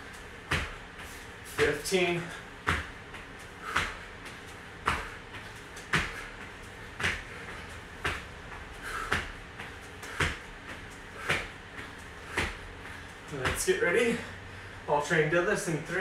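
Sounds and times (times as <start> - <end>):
landing thuds on rubber floor: 2.6 - 4.0, 4.8 - 10.5, 11.2 - 11.6, 12.3 - 12.6.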